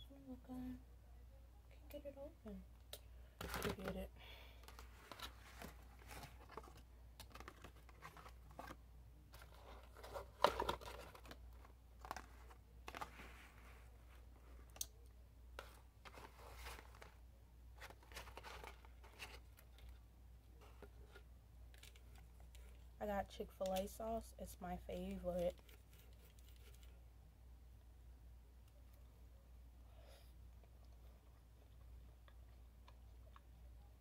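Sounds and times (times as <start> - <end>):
cardboard and paper rustling: 3.4 - 4.0, 4.6 - 14.6, 15.6 - 17.2, 17.8 - 22.9, 25.3 - 27.0.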